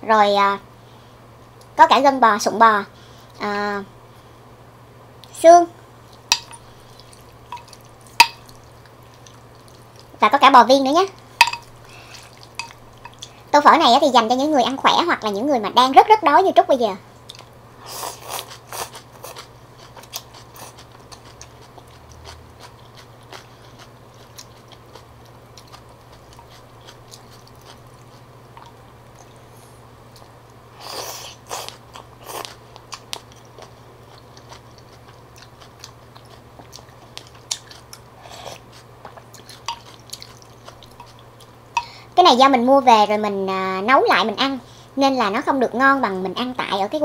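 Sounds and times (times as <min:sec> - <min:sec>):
chewing: 0:06.1 - 0:10.2, 0:11.4 - 0:13.4, 0:17.2 - 0:29.5, 0:31.0 - 0:42.0.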